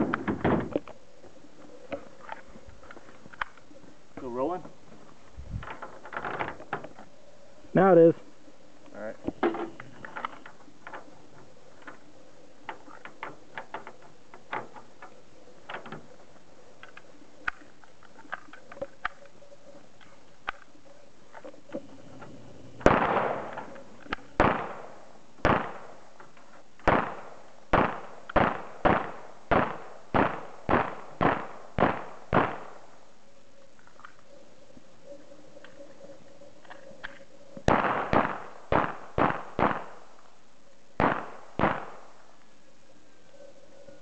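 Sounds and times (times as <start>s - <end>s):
pistol gunshots with echo: 22.8s - 23.7s, 24.4s - 26.0s, 26.8s - 32.9s, 37.7s - 40.1s, 41.0s - 42.2s.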